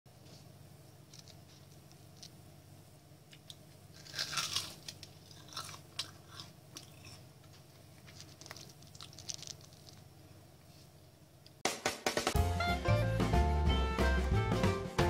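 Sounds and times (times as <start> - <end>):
faint low hum: 0.1 - 11.6
fried food crunching: 3.3 - 10.1.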